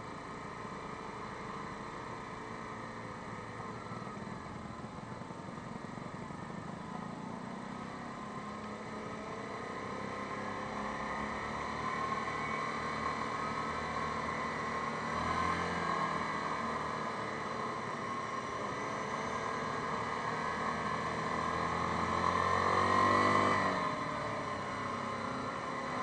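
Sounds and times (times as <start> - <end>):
atv engine revving: 8.2 - 26.0.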